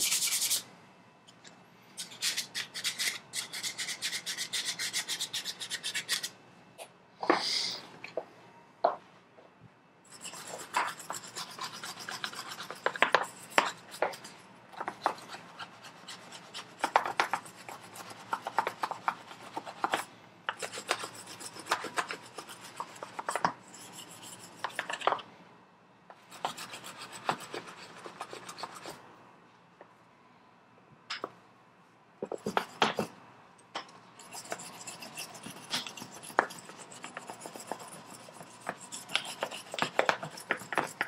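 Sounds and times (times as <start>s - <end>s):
wire brush scrubbing metal: 34.2s - 41.0s.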